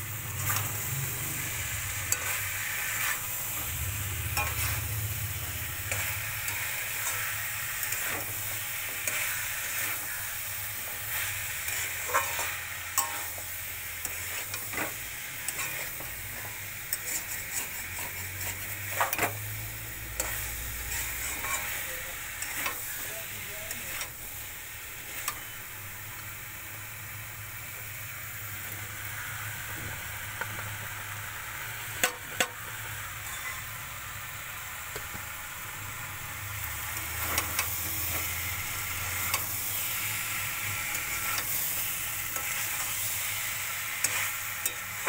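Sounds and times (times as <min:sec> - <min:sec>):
vegetables sizzling in a wok: 0:00.0 - 0:45.0
metal spatula scraping pan: 0:00.4 - 0:03.7, 0:04.3 - 0:10.2, 0:10.8 - 0:13.4, 0:14.0 - 0:19.5, 0:20.1 - 0:23.1.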